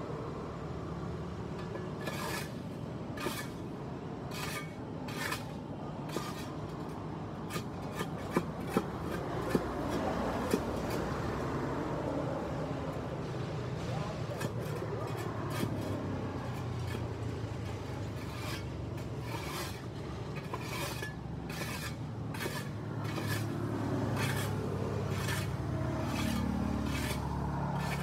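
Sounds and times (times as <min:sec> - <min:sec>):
tool scraping concrete: 0:01.6 - 0:11.4, 0:13.8 - 0:28.0.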